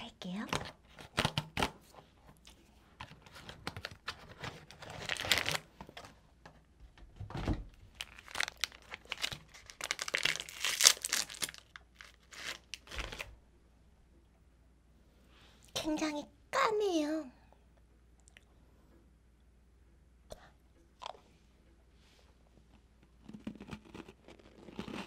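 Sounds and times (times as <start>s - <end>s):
plastic wrapper crinkling and tearing: 3.0s - 6.1s, 7.9s - 13.3s, 23.2s - 25.0s.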